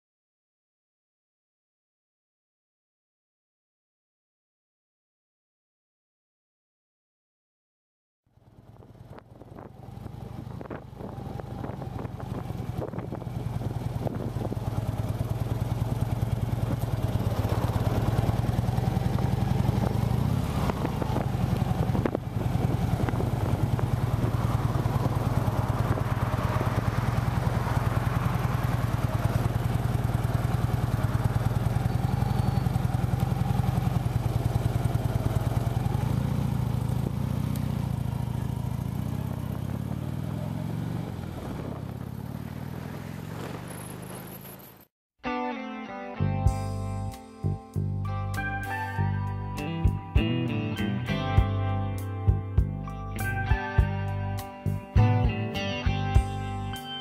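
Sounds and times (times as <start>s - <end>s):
motorcycle engine pulling away: 8.3s - 44.9s, 46.4s - 57.0s
wind rush: 10.4s - 14.7s, 20.3s - 28.4s.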